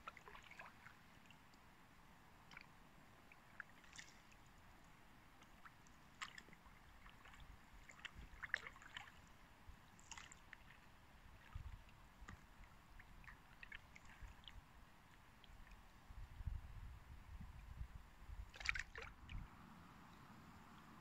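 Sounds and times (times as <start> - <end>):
water dripping from paddle: 0.0 - 1.7, 2.4 - 9.3, 9.9 - 15.9, 18.5 - 19.4.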